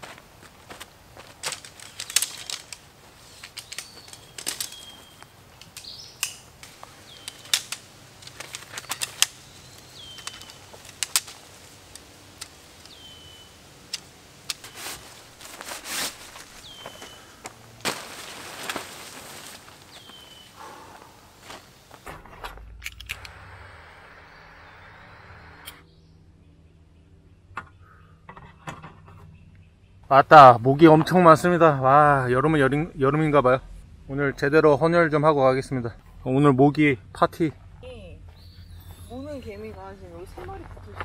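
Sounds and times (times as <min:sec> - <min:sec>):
tent poles clicking: 0:01.2 - 0:20.8
tent fabric rustling: 0:07.1 - 0:22.5
bird whistling: 0:12.9 - 0:13.6, 0:16.6 - 0:17.4, 0:38.3 - 0:39.4.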